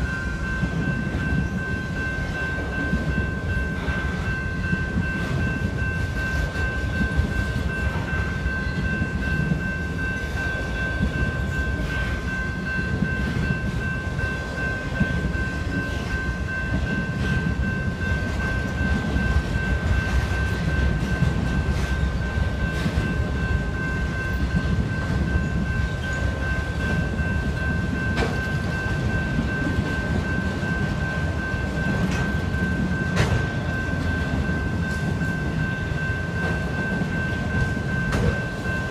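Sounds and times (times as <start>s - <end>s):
crossing bell ringing: 0.0s - 38.9s
train wheels rumbling on rails: 0.0s - 38.9s
wheels clacking over rail joints: 6.3s - 38.9s.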